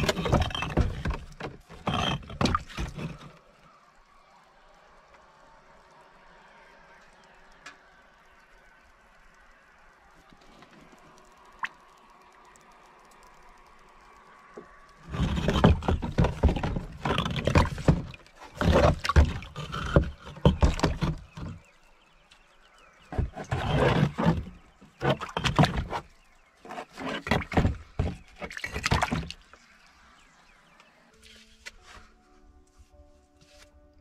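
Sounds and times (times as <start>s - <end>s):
water sloshing in a plastic tub: 0.0s - 3.6s, 14.4s - 22.3s, 23.0s - 30.6s.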